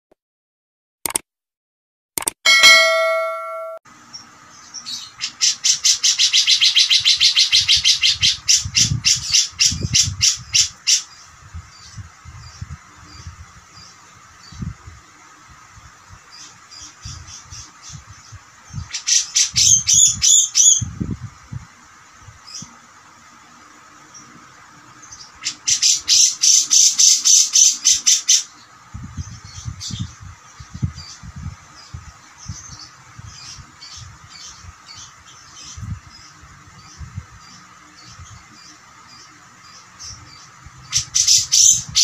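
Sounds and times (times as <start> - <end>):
bird harsh repeated notes: 2.5 - 3.8.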